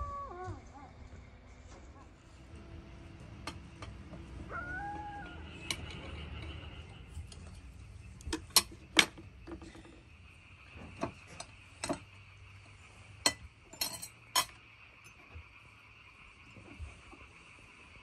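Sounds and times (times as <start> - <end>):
steady high background drone: 0.0 - 18.0
glass cups and plates clinking: 13.2 - 14.6.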